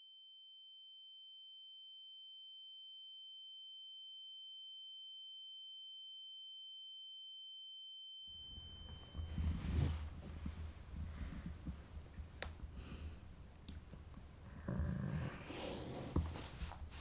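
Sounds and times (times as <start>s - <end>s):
high-pitched ringing tone: 0.0s - 9.9s
rustling and movement: 8.5s - 17.0s.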